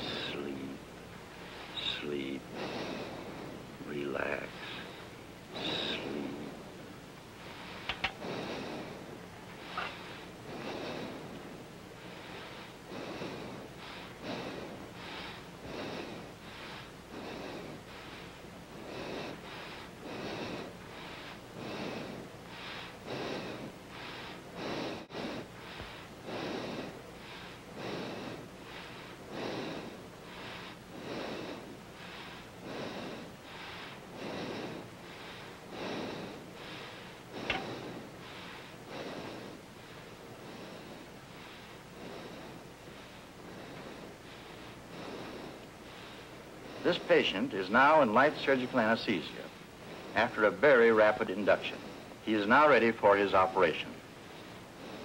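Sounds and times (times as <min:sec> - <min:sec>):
child breathing quickly: 0:00.0 - 0:03.8, 0:04.5 - 0:47.6, 0:53.8 - 0:55.0.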